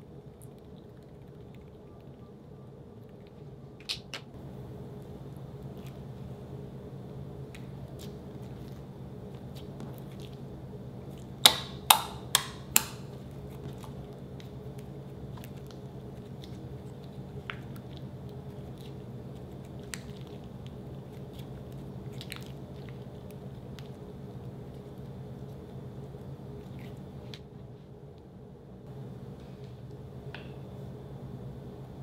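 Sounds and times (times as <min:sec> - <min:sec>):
slime squishing: 0:07.4 - 0:27.4.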